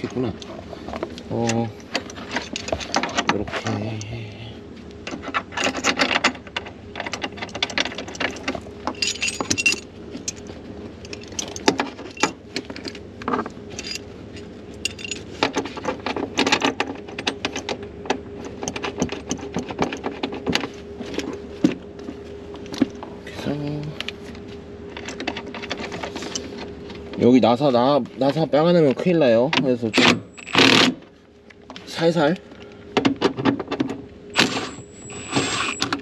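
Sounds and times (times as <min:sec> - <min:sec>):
metal harness fittings clinking: 0:07.4 - 0:10.5.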